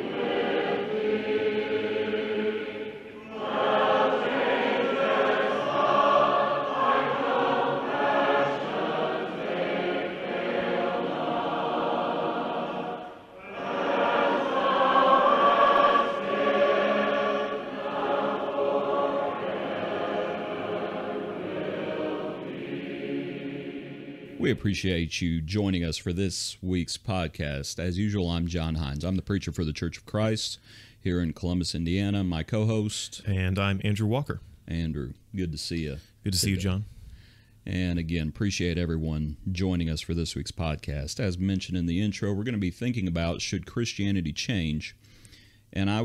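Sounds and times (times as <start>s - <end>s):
choir singing: 0.0s - 24.6s.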